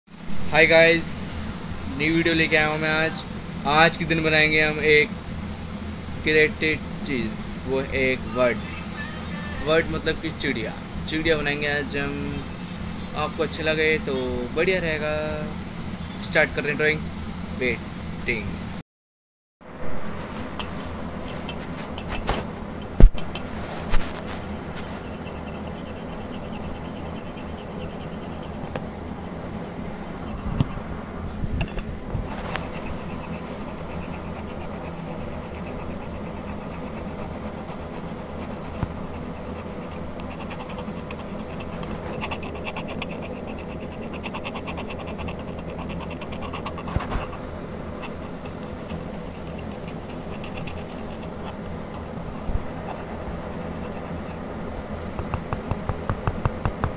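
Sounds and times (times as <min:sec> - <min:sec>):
steady background hum: 0:00.1 - 0:18.8, 0:19.6 - 0:56.9
pencil scratching on paper: 0:23.5 - 0:30.8, 0:32.2 - 0:54.4.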